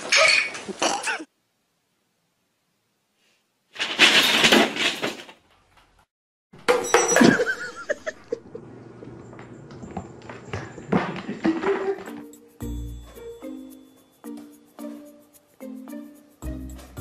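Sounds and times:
paper bag rustling: 0:03.8 - 0:05.4
plastic bottles clattering: 0:03.8 - 0:05.5, 0:10.9 - 0:12.3.

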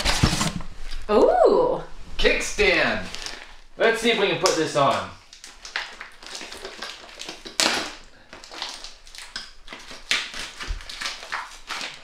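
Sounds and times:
packaging clicking and crinkling: 0:03.1 - 0:03.6, 0:04.4 - 0:12.0.

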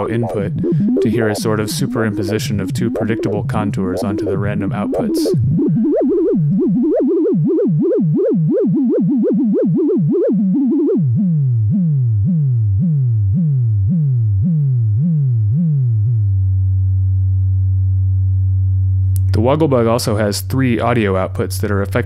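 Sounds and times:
wobbling synthesizer tone: 0:00.0 - 0:16.6.

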